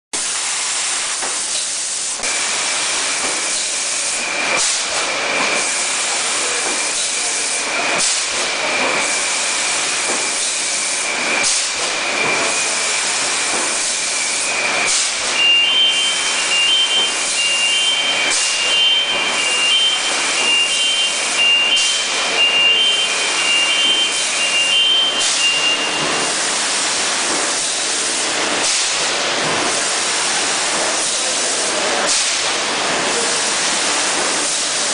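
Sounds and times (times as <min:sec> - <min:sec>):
hiss of air and machinery: 0:00.2 - 0:34.9
high machine whine: 0:02.2 - 0:28.3
rapid pulsing electronic beeps: 0:15.4 - 0:26.0.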